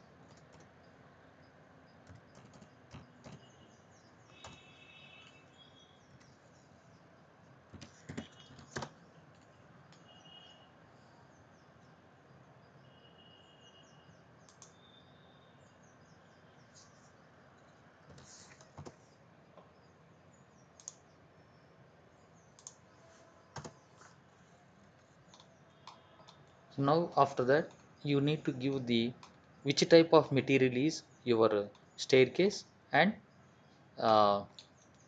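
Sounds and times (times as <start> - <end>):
faint bird chirps: 0.0 - 30.4
computer mouse clicks: 0.2 - 0.7, 2.0 - 3.5, 14.4 - 14.8, 20.8 - 21.1, 22.5 - 22.9, 25.3 - 26.5.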